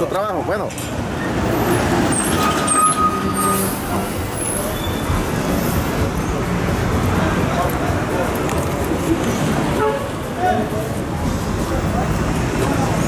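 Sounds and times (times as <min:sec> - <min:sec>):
road noise: 0:00.0 - 0:13.0
large vehicle engine running: 0:03.7 - 0:13.0.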